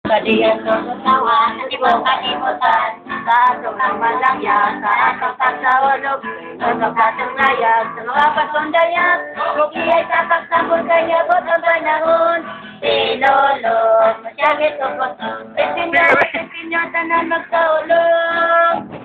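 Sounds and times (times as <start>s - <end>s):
strummed acoustic guitar: 0.0s - 19.0s
people singing carols: 0.1s - 19.0s.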